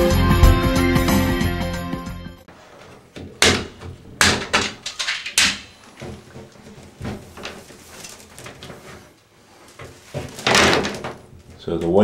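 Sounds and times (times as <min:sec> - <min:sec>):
plastic handling clatter: 0:03.1 - 0:12.0.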